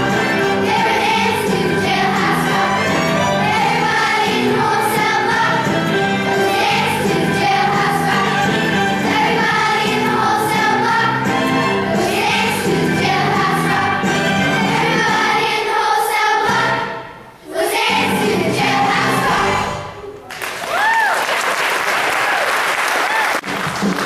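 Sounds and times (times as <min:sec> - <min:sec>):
rock and roll accompaniment: 0:00.0 - 0:15.4
children's choir singing: 0:00.0 - 0:20.2.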